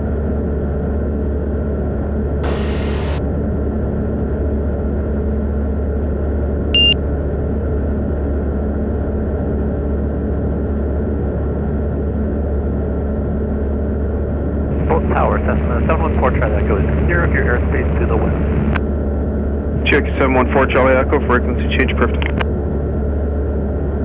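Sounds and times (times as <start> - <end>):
aircraft engine and propeller droning: 0.0 - 24.0
short high electronic beep: 6.8 - 7.0.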